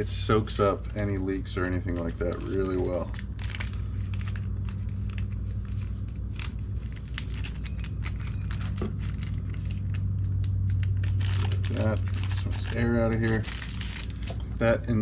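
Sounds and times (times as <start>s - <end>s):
low electrical hum: 0.0s - 15.0s
small clicks and crinkles: 0.8s - 14.5s.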